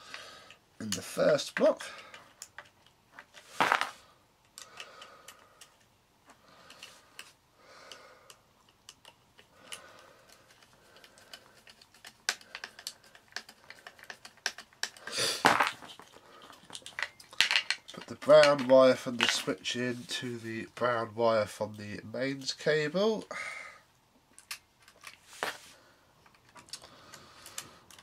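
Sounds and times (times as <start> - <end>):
loud scuffs: 3.5 - 4.0
fingers clicking and tapping wires: 4.4 - 18.7.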